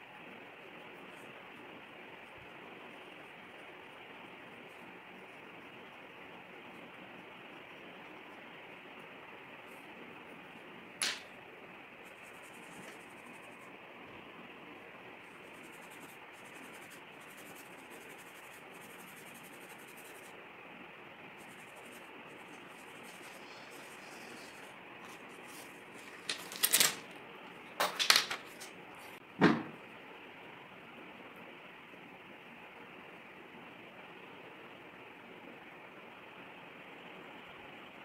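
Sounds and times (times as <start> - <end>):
pencil scratching on paper: 12.0 - 13.7, 15.3 - 20.3, 21.4 - 25.7
steady hiss: 21.3 - 26.6.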